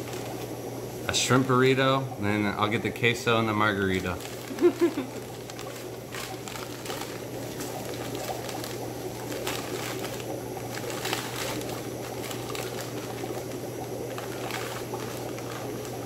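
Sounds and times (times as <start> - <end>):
paper crinkling and tearing: 3.8 - 16.0.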